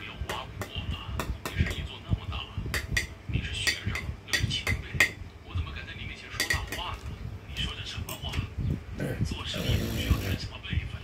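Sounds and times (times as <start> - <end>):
cutlery clinking on dishes: 6.4 - 7.0.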